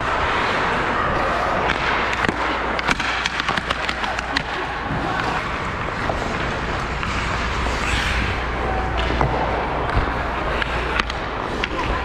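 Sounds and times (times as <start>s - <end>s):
skates scraping on ice: 0.0s - 12.0s
steady low rumble: 3.9s - 12.0s.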